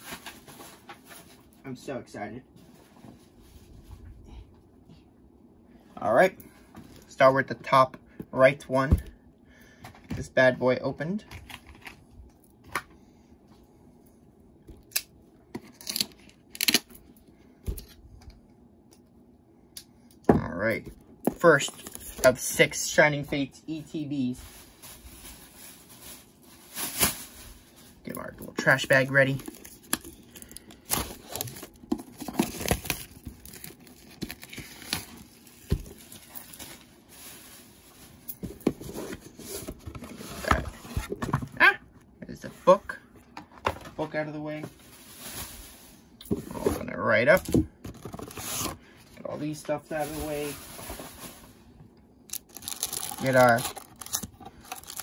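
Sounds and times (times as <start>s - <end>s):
plastic wrap tearing and crumpling: 15.7s - 16.9s, 28.6s - 38.2s, 52.3s - 55.0s
packaging rustling: 24.5s - 41.5s, 47.9s - 48.8s, 52.3s - 55.0s.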